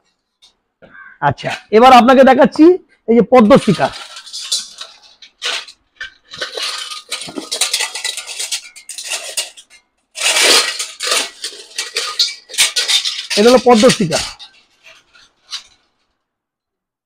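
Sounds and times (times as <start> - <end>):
metal chains rattling and clinking: 3.4 - 15.8.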